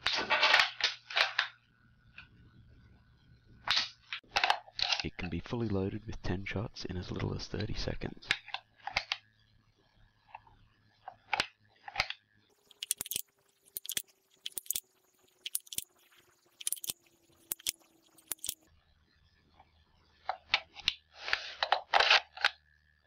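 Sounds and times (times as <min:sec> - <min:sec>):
rubber bands clicking and snapping: 0:16.6 - 0:18.6.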